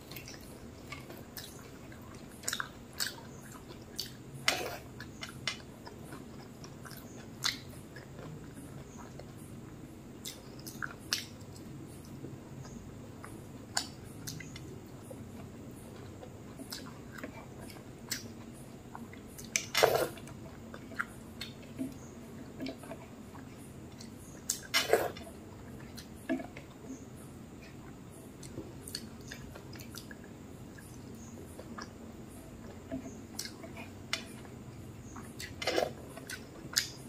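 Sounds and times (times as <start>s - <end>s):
person chewing: 32.6s - 37.0s.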